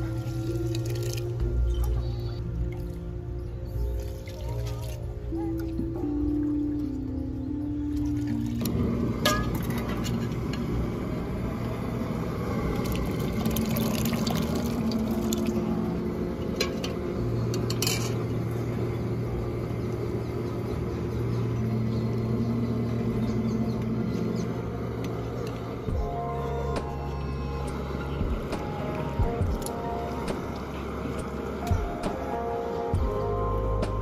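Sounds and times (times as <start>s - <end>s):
steady low rumble: 0.0s - 34.0s
liquid pouring into a pot: 12.8s - 15.6s.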